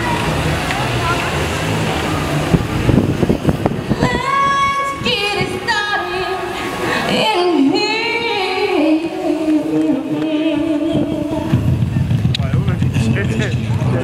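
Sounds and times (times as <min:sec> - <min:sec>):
woman singing slow melody: 0:03.9 - 0:11.7.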